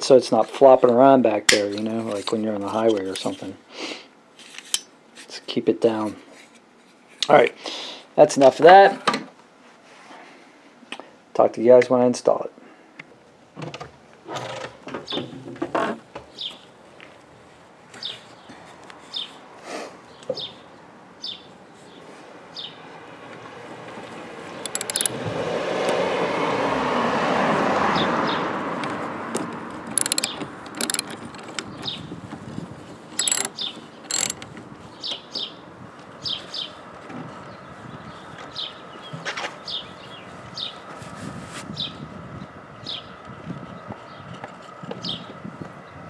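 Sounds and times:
ratchet wrench clicking: 24.6 - 25.2, 29.4 - 31.6, 33.2 - 34.4.

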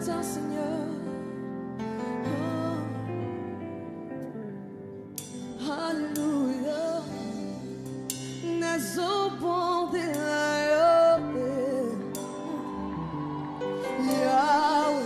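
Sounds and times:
woman singing gospel song: 0.0 - 1.4, 2.2 - 3.6, 5.6 - 7.6, 8.4 - 13.0, 13.8 - 15.0
live band accompaniment: 1.8 - 15.0.

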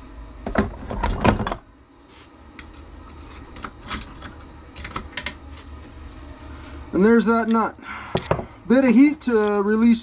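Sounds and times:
metal tools clinking and rattling: 3.2 - 5.4.

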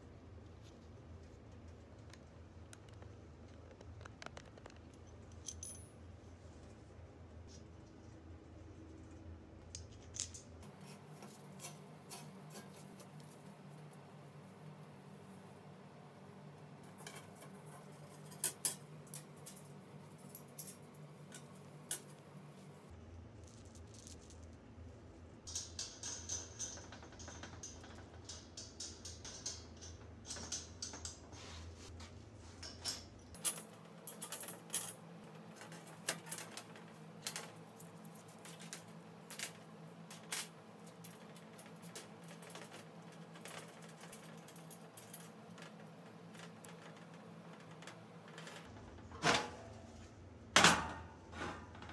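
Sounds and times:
small metal parts clinking: 5.0 - 5.9.

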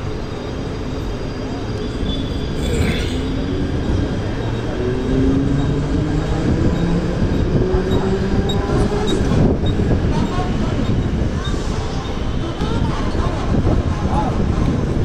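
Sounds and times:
train coach rumbling and rattling: 0.0 - 15.0.

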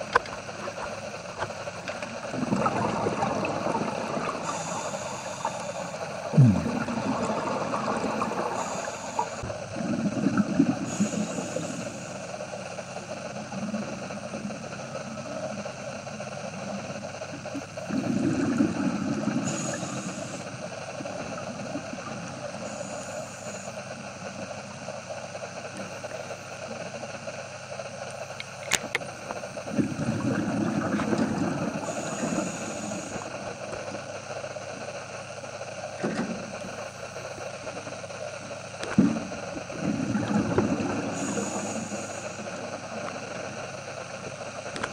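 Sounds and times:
underwater low drone: 0.0 - 44.9
exhaled air bubbling: 0.4 - 12.2, 17.3 - 23.8, 29.5 - 44.7.

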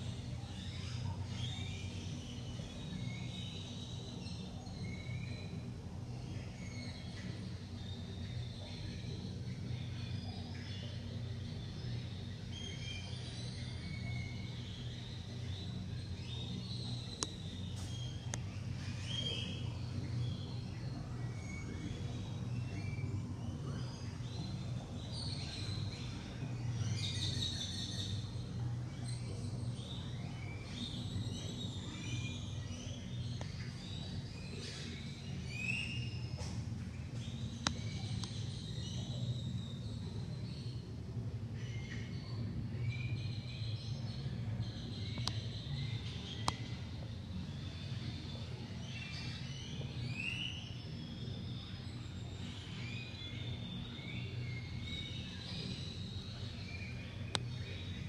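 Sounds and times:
small birds chirping: 0.0 - 58.0
steady low hum: 0.0 - 58.0.

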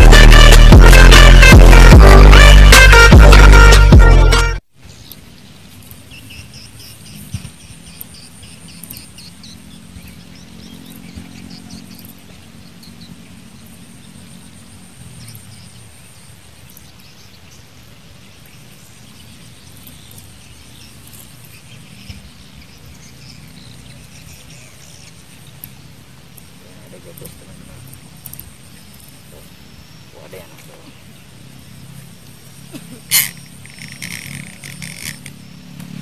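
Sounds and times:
low hum: 0.0 - 4.6
high-pitched insect drone: 31.8 - 36.0.

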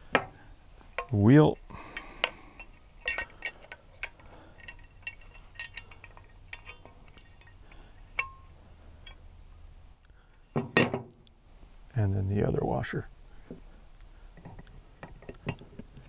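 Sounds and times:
light clicks and metallic clinks: 0.0 - 9.3, 13.2 - 16.0
short ringing clink: 8.2 - 9.2.

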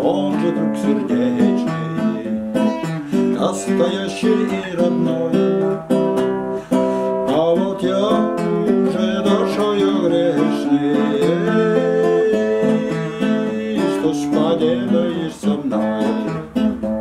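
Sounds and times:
man singing: 0.0 - 6.1, 6.7 - 16.7
classical guitar strummed: 0.0 - 17.0.

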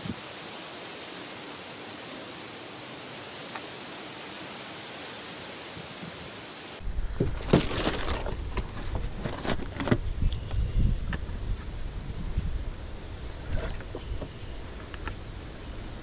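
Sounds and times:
steady hiss: 0.0 - 6.9.

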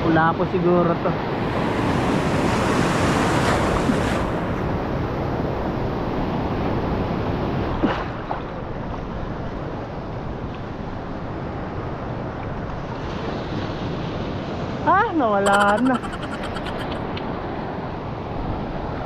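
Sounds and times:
sea waves breaking: 1.1 - 5.6.

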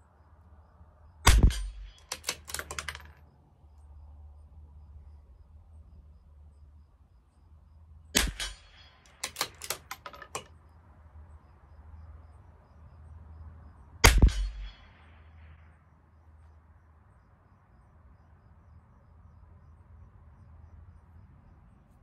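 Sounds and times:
rifle shots: 1.2 - 3.1, 8.2 - 10.4, 14.0 - 14.9
rifle bolt metallic clicks: 1.3 - 3.2, 8.2 - 10.5.

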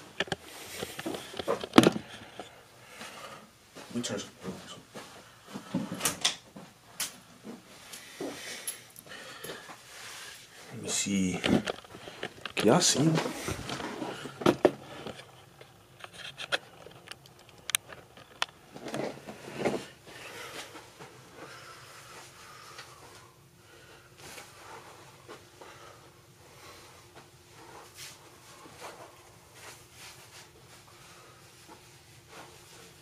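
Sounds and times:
shuffling: 6.5 - 15.2.

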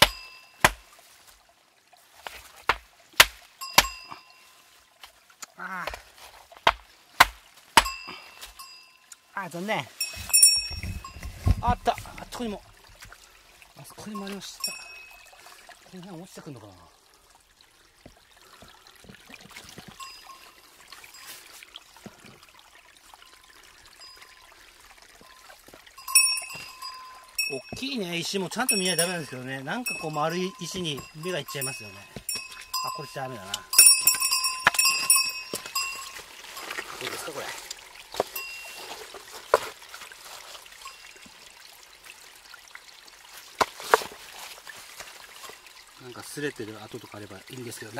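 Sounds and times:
creek trickling over stones: 0.0 - 47.9
footsteps on wet gravel: 28.6 - 41.0.

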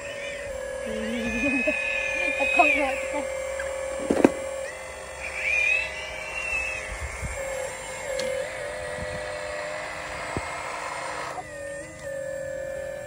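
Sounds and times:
electric motor whirring: 0.0 - 13.0
rising motor whine: 0.0 - 13.0.

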